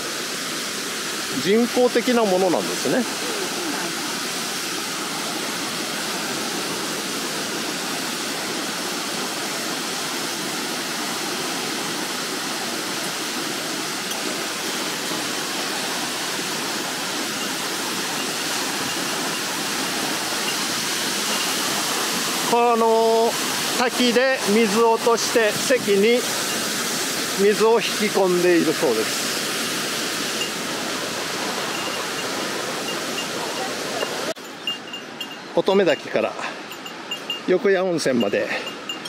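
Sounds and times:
waterfall rushing: 0.0s - 39.0s.

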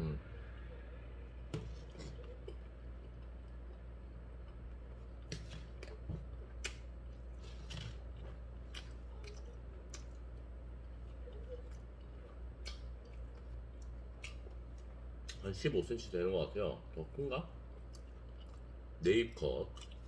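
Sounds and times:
chewing food: 1.6s - 15.5s, 17.6s - 18.9s, 19.6s - 20.0s
wet mouth clicks and smacks: 12.6s - 13.2s, 13.8s - 15.4s.

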